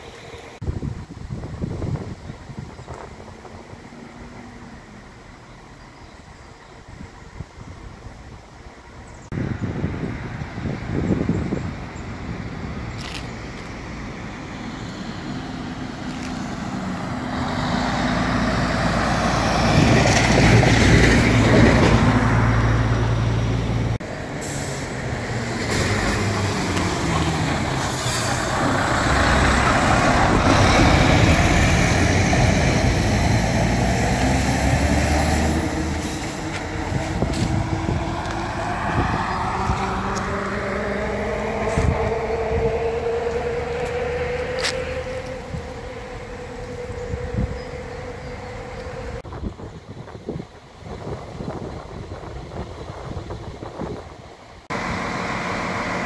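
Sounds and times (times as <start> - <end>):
lorries passing: 0.0 - 56.0
rising engine whine: 9.3 - 50.2, 54.6 - 56.0.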